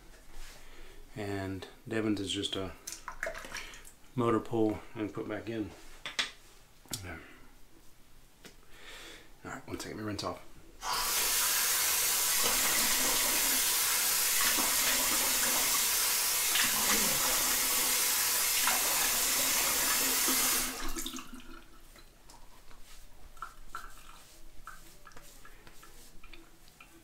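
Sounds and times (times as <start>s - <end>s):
faucet running into sink: 10.8s - 21.7s.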